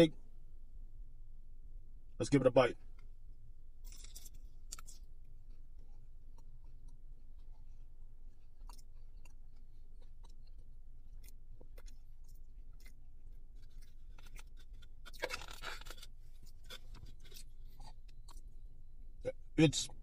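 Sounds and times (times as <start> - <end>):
chewing crispy food: 3.8 - 18.8.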